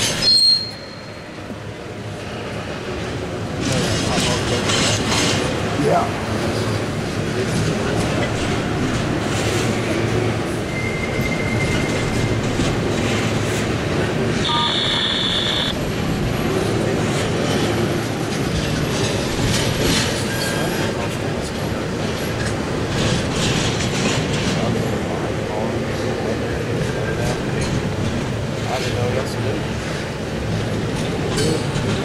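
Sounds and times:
wheel squeal: 0.0 - 1.3, 10.7 - 12.6.

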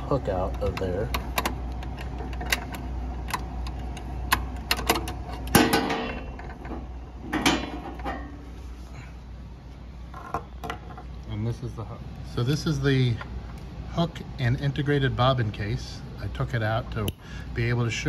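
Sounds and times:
metal clicks and knocks: 0.4 - 8.3.

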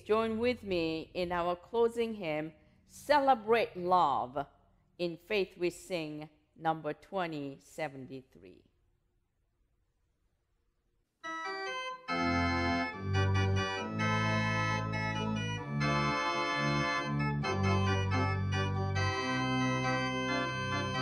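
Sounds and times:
organ playing hymn chords: 11.2 - 21.0.

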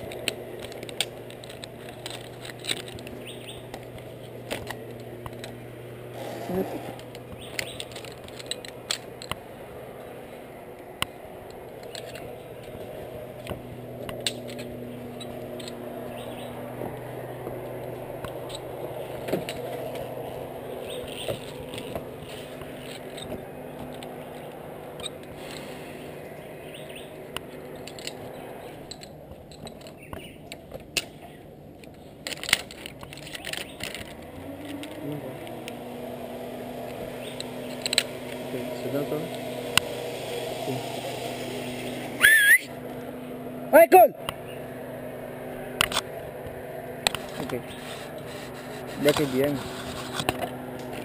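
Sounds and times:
metal clicks of zipline hardware: 0.0 - 5.6, 7.0 - 9.4, 11.0 - 12.8, 13.4 - 17.1, 26.7 - 31.2, 31.8 - 35.8, 36.8 - 38.4, 45.8 - 46.1
steady low hum: 0.0 - 51.0.

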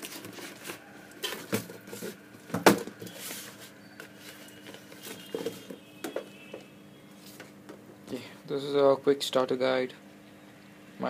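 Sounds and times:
cardboard packaging handled: 0.0 - 6.4.

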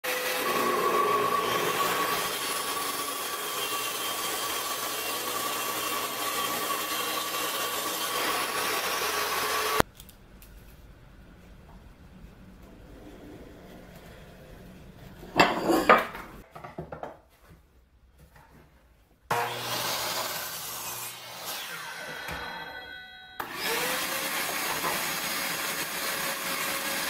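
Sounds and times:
miter saw cutting wood: 0.0 - 9.8, 19.3 - 27.0.

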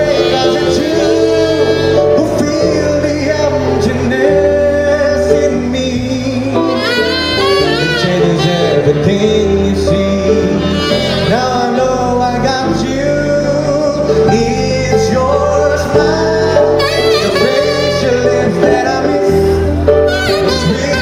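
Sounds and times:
saxophone: 0.0 - 2.9, 6.3 - 9.4, 10.4 - 12.2, 16.5 - 21.0
man and woman singing: 0.0 - 7.0, 7.7 - 19.8.

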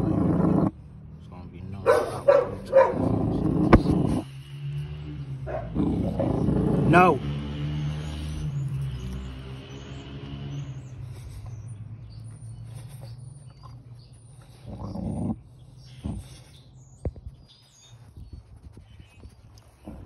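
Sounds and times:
dog growling: 0.0 - 0.9, 1.9 - 4.4, 5.2 - 7.2, 10.5 - 17.0
dog barking: 1.8 - 3.1, 5.5 - 5.8.

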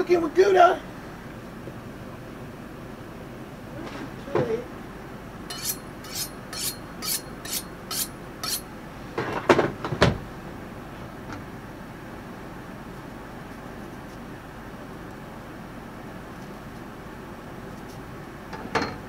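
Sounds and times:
knife scraping on sharpening steel: 5.5 - 8.7.

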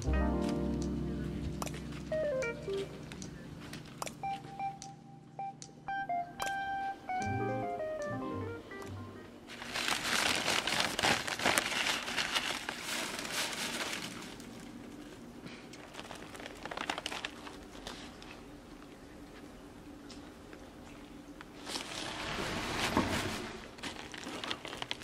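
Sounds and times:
paper wrapper crinkling: 9.5 - 18.6, 21.6 - 25.0.

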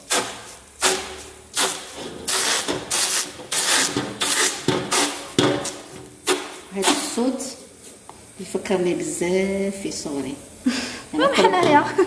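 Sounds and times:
dough dabbing on hot tray: 0.0 - 8.2.

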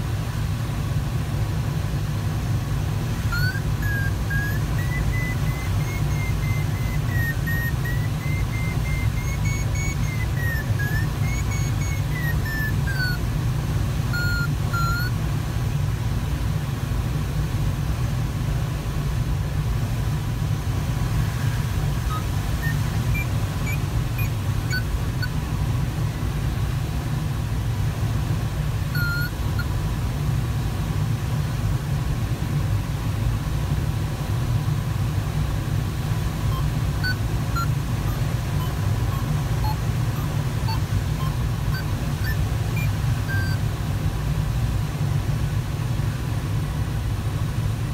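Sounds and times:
airflow rushing in cockpit: 0.0 - 47.9
wavering electronic variometer tone: 2.4 - 16.2, 20.0 - 30.2, 34.4 - 46.4
short beeps: 3.3 - 13.3, 14.1 - 15.2, 21.2 - 25.4, 28.9 - 29.7, 36.5 - 43.6.

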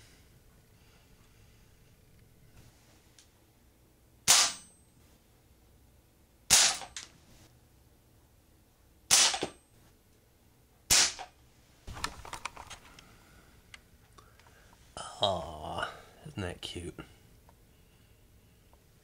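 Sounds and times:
pellet pistol shots: 4.2 - 4.7, 6.5 - 7.0, 9.1 - 9.6, 10.9 - 11.3
quiet clicks and rattles: 11.9 - 13.1.

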